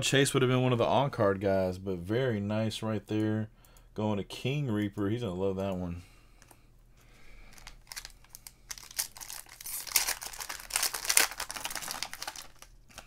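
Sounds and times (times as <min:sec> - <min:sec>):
foil wrapper tearing and crinkling: 0:07.5 - 0:13.0.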